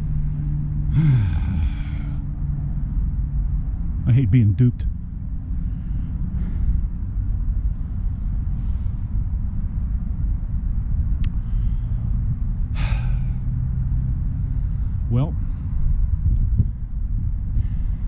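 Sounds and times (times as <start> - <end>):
wind rumble on microphone: 0.0 - 18.0
man breathing out heavily: 0.8 - 2.3, 5.5 - 7.0, 7.8 - 9.4, 11.4 - 13.8, 14.4 - 16.3, 17.5 - 18.0.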